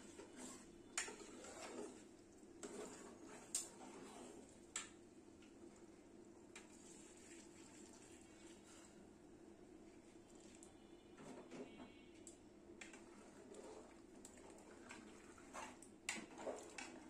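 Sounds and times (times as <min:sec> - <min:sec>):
spoon scraping in pot: 0:00.0 - 0:04.5, 0:12.8 - 0:14.0.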